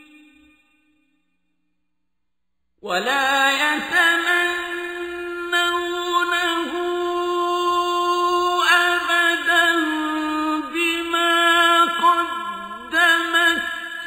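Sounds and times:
man reciting melodically: 0:02.8 - 0:14.0.

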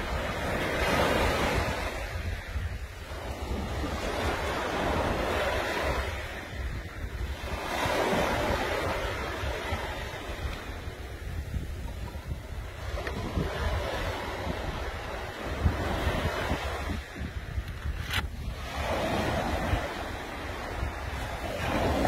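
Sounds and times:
waves washing up beach: 0:00.0 - 0:22.0
wind on microphone: 0:00.0 - 0:22.0.

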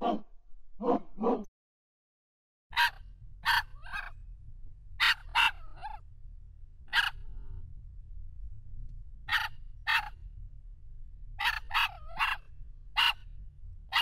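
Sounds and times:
dogs barking: 0:00.0 - 0:00.2, 0:00.8 - 0:01.5, 0:02.8 - 0:04.1, 0:05.0 - 0:06.0, 0:06.9 - 0:07.2, 0:09.3 - 0:10.2, 0:11.4 - 0:13.2
low steady rumble: 0:02.7 - 0:14.0.

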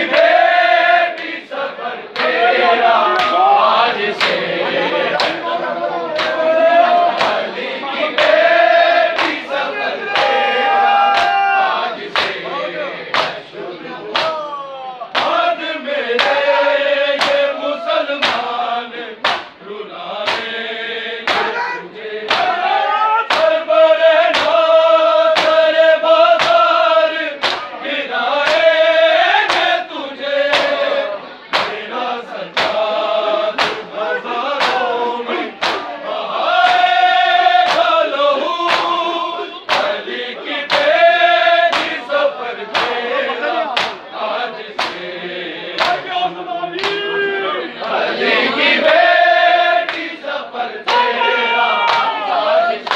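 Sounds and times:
men chanting in chorus: 0:00.0 - 0:52.9
hands beating on chests: 0:11.1 - 0:11.4, 0:18.2 - 0:18.5, 0:19.2 - 0:19.5, 0:21.3 - 0:21.6, 0:23.3 - 0:23.6, 0:25.4 - 0:25.6, 0:35.6 - 0:35.9, 0:39.7 - 0:40.0, 0:42.7 - 0:43.0.

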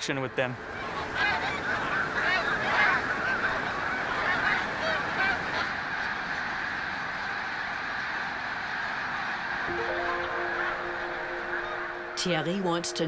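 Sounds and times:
geese honking: 0:00.6 - 0:07.5.

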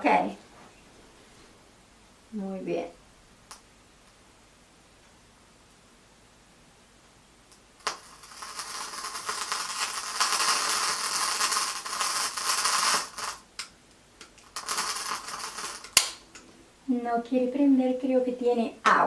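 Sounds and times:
torch lighter hissing: 0:07.8 - 0:16.4.

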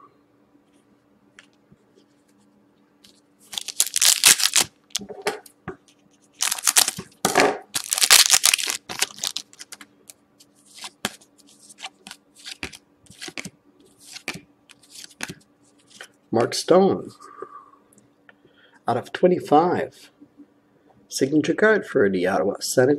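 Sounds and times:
foil wrapper tearing and crinkling: 0:03.5 - 0:04.8, 0:06.4 - 0:07.0, 0:07.7 - 0:09.8
cards rustling and clicking: 0:03.5 - 0:05.0, 0:06.4 - 0:07.1, 0:07.8 - 0:09.9, 0:10.6 - 0:16.1.

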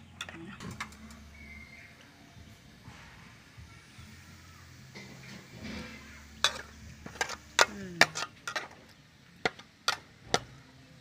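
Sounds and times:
garlic frying in oil: 0:03.8 - 0:11.0
metal spatula clinking on wok: 0:06.4 - 0:08.7.

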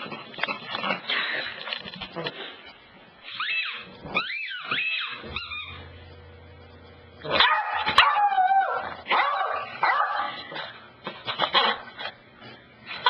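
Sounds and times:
puppy whining and yipping: 0:03.2 - 0:05.9
puppy barking: 0:07.3 - 0:10.4.

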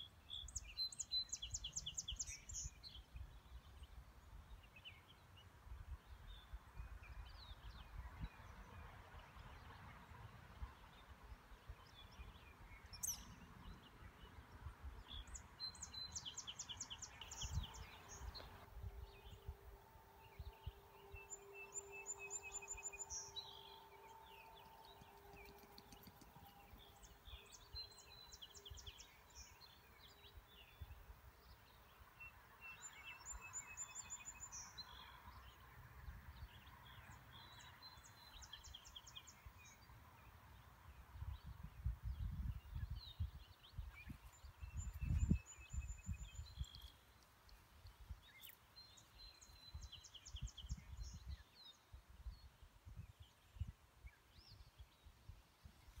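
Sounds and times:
faint bird chirps: 0:15.1 - 0:31.0
songbird whistle and trill: 0:15.2 - 0:30.8, 0:32.6 - 0:35.1, 0:42.2 - 0:46.9
wind rumble on microphone: 0:17.0 - 0:21.4, 0:40.9 - 0:46.9, 0:49.3 - 0:56.0.

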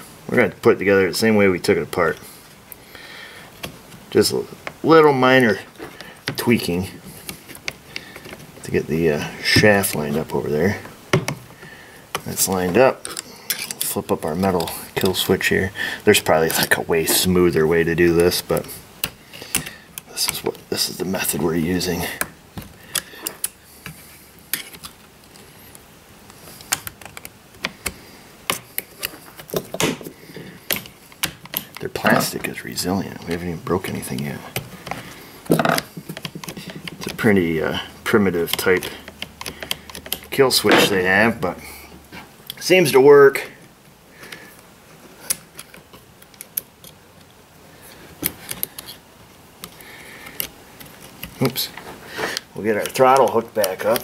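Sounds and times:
small parts clicking and tapping: 0:09.4 - 0:40.9, 0:44.2 - 0:54.0.

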